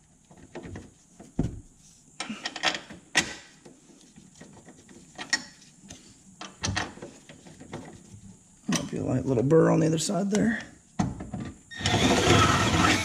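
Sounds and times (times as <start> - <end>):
dull thump: 1.4 - 1.7.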